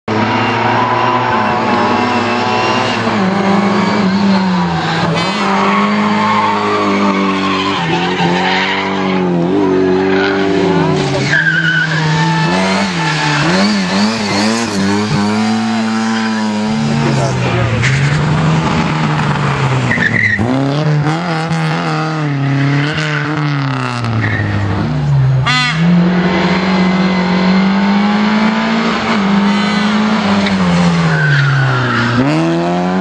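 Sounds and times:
rally car engines revving: 0:00.1 - 0:33.0
tyre squeal: 0:11.0 - 0:18.2, 0:19.9 - 0:20.6, 0:29.4 - 0:32.5.

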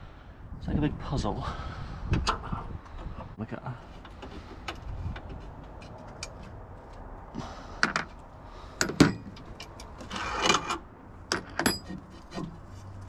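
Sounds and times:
covers clicking and knocking: 0:08.8 - 0:12.6
short scraping rustle: 0:10.0 - 0:10.8.

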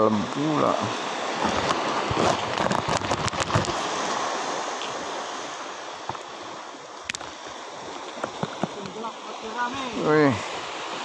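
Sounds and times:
surf washing on shore: 0:00.0 - 0:11.0
hands handling a fish: 0:07.0 - 0:10.0.

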